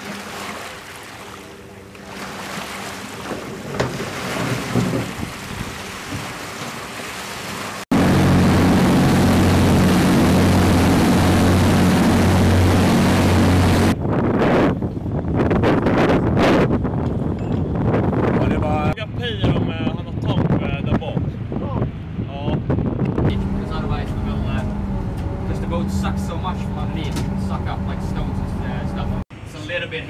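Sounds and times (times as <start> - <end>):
water washing on shore: 0.0 - 13.9
rush of wake water: 0.0 - 14.0
boat diesel engines running: 0.1 - 14.0.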